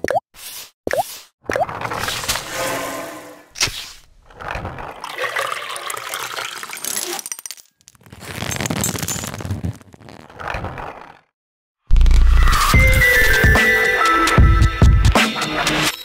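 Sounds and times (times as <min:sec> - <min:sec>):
water gushing through pipes: 0:04.5 - 0:06.8.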